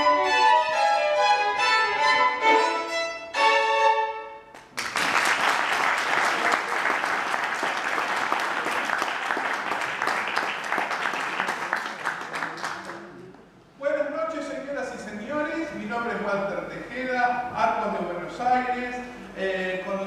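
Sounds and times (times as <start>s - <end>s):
violin playing tango: 0.0s - 4.5s
audience applauding: 4.6s - 13.2s.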